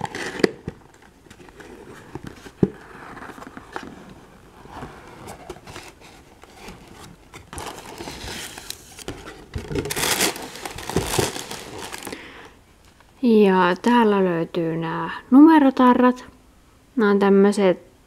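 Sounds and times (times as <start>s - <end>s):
plastic sheet crinkling: 0.0s - 4.1s, 5.1s - 12.3s
cardboard scraping and rubbing: 1.4s - 12.1s.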